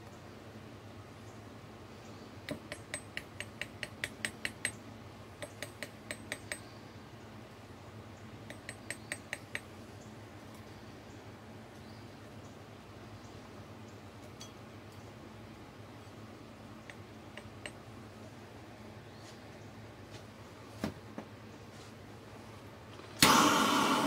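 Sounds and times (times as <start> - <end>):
metal pick tapping on tin: 5.4 - 6.7, 8.5 - 9.7.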